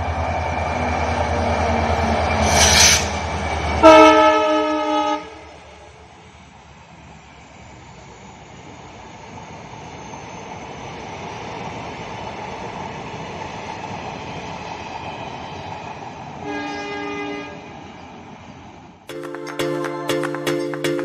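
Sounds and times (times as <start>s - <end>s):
train coaches rumbling on rails: 0.0s - 4.8s, 8.6s - 18.9s
train horn: 3.8s - 5.6s, 16.4s - 17.7s.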